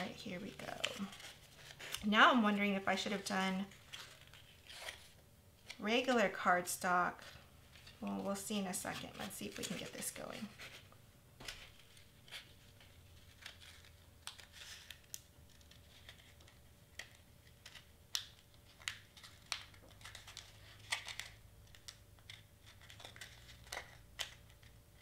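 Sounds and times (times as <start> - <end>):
cardstock crinkling and clicking: 7.2 - 10.8, 11.4 - 25.0.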